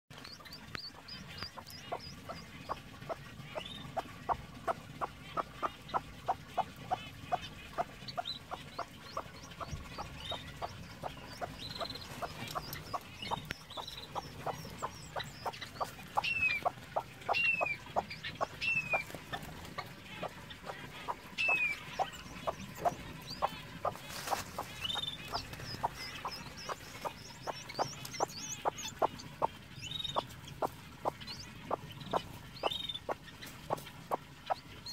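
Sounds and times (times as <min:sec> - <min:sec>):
chicks peeping: 0:00.1 - 0:34.9
hen clucking: 0:00.3 - 0:34.9.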